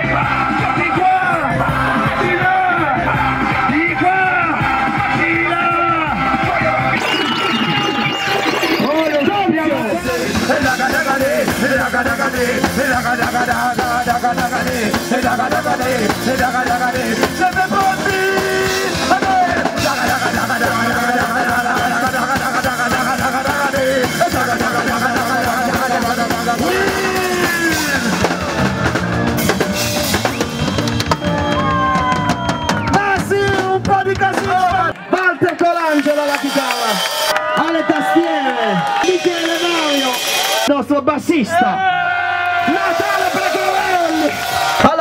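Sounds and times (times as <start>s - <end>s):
men singing into microphones: 0.0s - 9.2s, 9.8s - 28.6s
drum kit beat: 0.0s - 34.9s
guitar: 0.0s - 35.1s.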